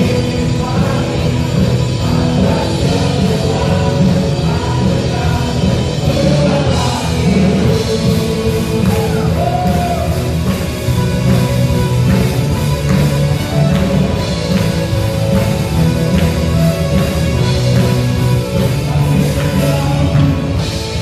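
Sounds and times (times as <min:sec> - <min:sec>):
people singing: 0:00.0 - 0:10.2, 0:18.5 - 0:21.0
worship band playing: 0:00.0 - 0:21.0.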